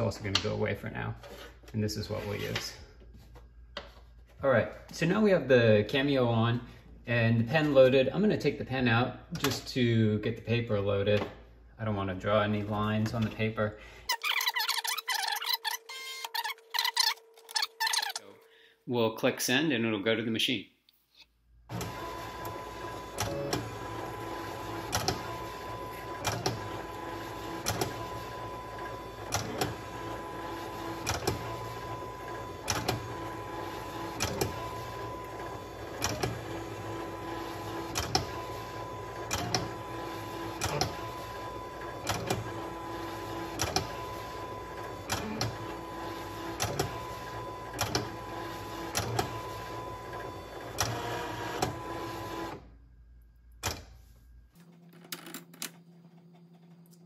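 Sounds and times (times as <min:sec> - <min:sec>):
cutting machine motors whining: 0:14.3 - 0:18.2.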